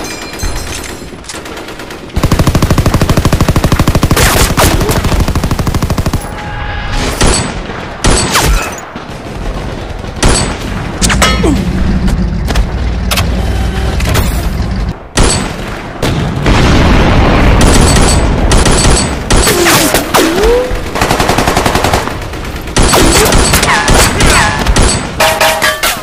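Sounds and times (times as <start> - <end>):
machine-gun fire: 0.6 - 6.3, 15.2 - 25.2.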